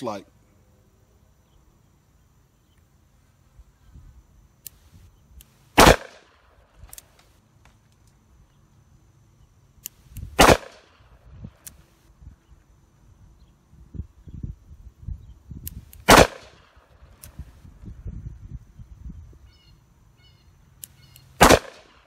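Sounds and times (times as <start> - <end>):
faint sharp clicks: 4.6 - 5.6, 9.8 - 10.3, 11.6 - 11.9, 17.1 - 17.5, 20.7 - 21.4
revolver gunshots with echo: 5.8 - 6.6, 10.4 - 11.2, 16.0 - 16.8, 21.4 - 22.0.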